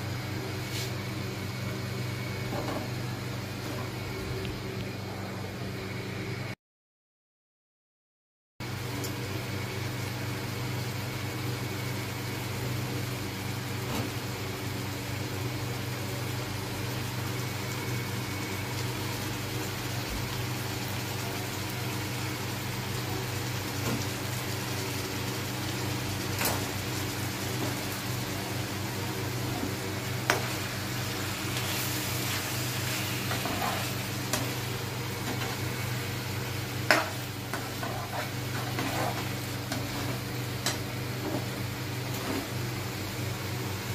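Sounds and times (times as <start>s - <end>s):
gravy simmering and sizzling: 11.8s - 43.9s.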